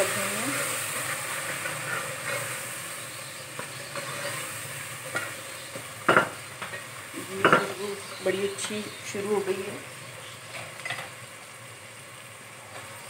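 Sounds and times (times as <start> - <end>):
masala sizzling in oil: 0.0 - 13.0
wooden spatula stirring and scraping: 3.6 - 5.9.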